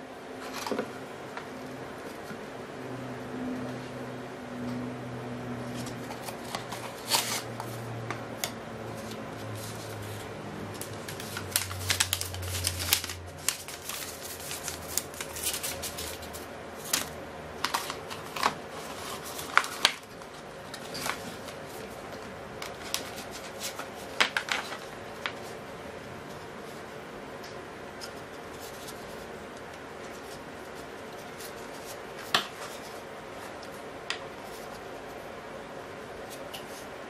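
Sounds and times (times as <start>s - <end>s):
paper manual leafed through: 5.7s - 25.6s.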